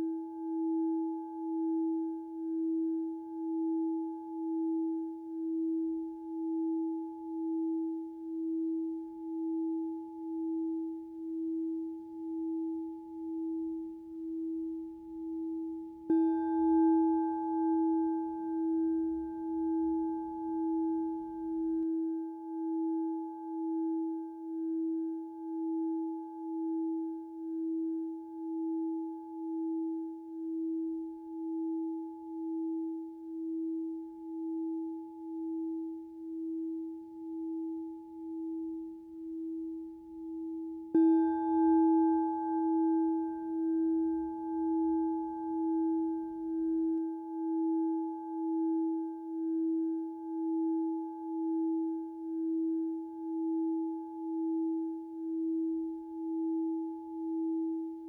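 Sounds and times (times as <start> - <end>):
singing bowl low sustained tone: 0.0 - 58.0.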